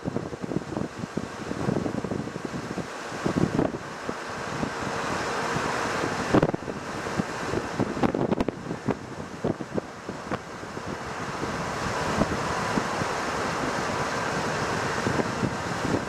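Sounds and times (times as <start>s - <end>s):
vehicle moving on paved road: 0.0s - 16.0s
wind buffeting microphone: 0.0s - 16.0s.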